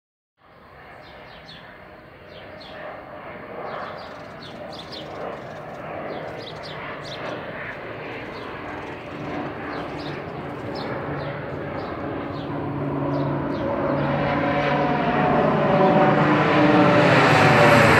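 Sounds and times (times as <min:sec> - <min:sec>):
airplane engine drone: 0:00.4 - 0:17.9
birds chirping: 0:00.5 - 0:14.8.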